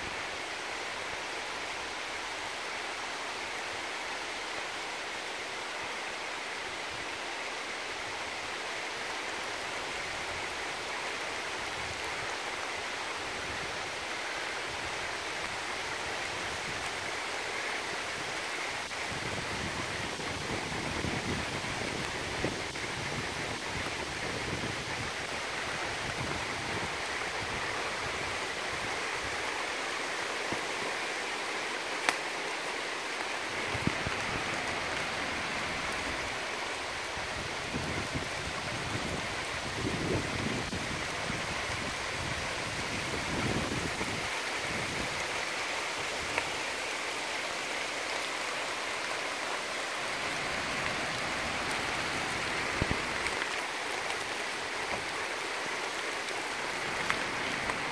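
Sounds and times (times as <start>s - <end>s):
outdoor background hiss: 0.0s - 57.9s
faint sharp clicks: 32.0s - 32.2s.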